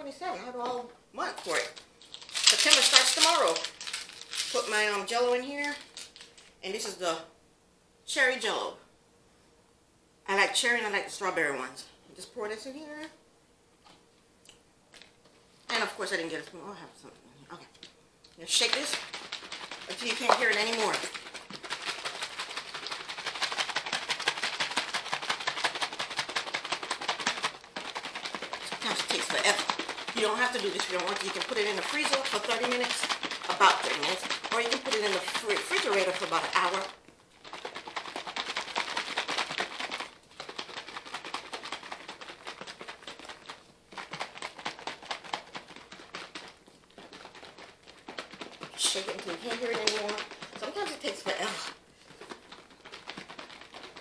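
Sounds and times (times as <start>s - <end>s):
cream sloshing in shaken container: 1.2s - 6.9s, 18.4s - 54.0s.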